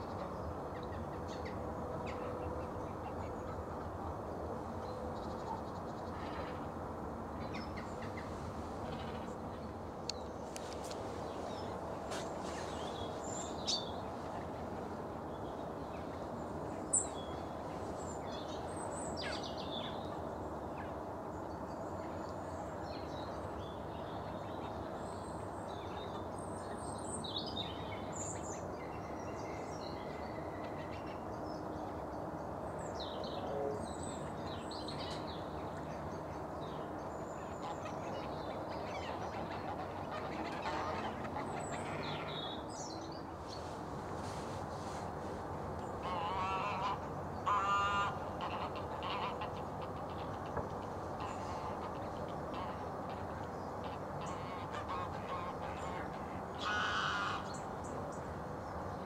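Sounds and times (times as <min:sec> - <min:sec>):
wild birds chirping: 0:04.6 - 0:59.0.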